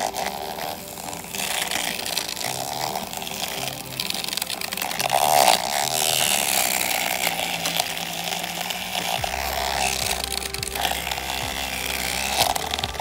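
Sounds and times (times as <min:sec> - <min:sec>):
handheld whisk motor buzzing: 0:00.0 - 0:13.0.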